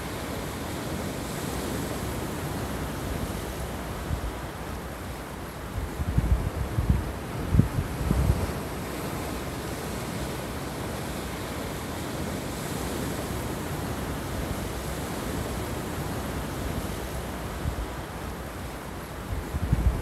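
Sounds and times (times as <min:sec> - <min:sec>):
waves breaking on rocky shore: 0:00.0 - 0:20.0
wind rumbling on microphone: 0:05.6 - 0:11.3, 0:19.2 - 0:20.0.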